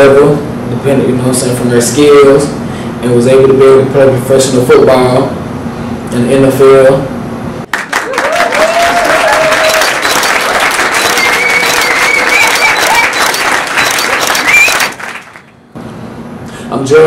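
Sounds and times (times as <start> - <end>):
small audience applauding: 7.7 - 15.6.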